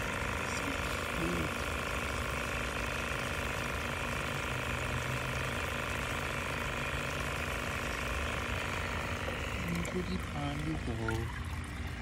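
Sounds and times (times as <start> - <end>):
pump humming: 0.0 - 12.0
water bubbling: 4.6 - 12.0.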